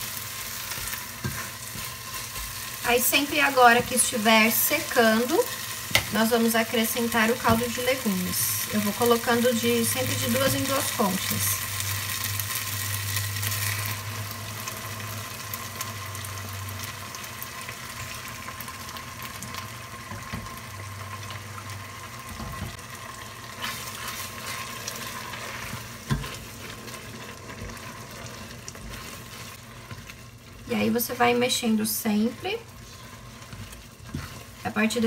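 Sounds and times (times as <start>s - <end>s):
spatula stirring: 0.0s - 11.3s, 23.4s - 35.0s
risotto sizzling and bubbling: 0.0s - 35.0s.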